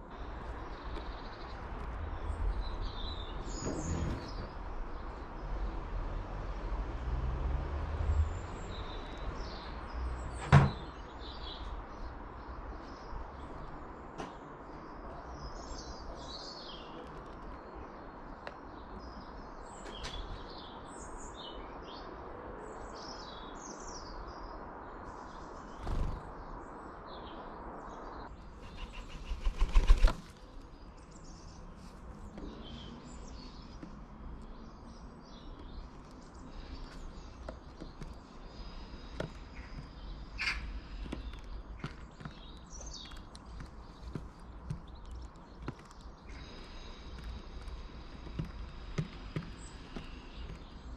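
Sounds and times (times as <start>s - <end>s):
small birds chirping and singing: 0.0s - 6.6s, 8.0s - 50.9s
knocks on bird table: 10.4s - 10.8s.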